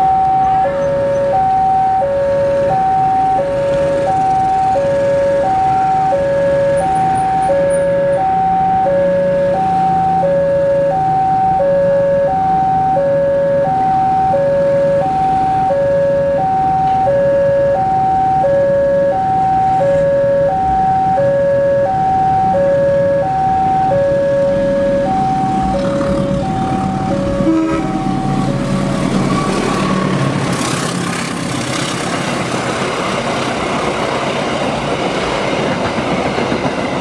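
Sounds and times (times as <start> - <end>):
level crossing alarm two-tone: 0.0 - 28.8.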